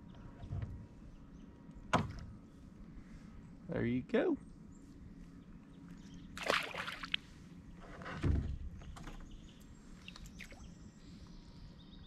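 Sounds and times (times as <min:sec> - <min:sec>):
water splash: 0:06.4 - 0:07.2
low thump against plastic hull: 0:08.1 - 0:09.4.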